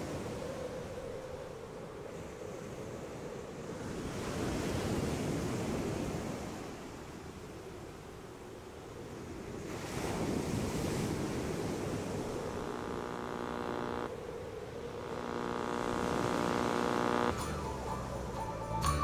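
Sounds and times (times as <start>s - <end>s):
ocean surf on a beach: 0.0s - 17.4s
steady buzzing tone: 12.2s - 18.1s.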